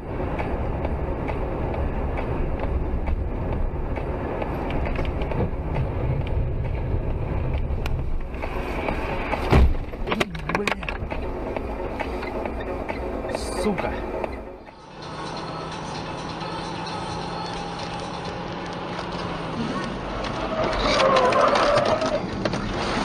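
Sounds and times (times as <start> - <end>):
car road rumble and engine: 0.0 - 23.0
loud thump: 9.4 - 10.0.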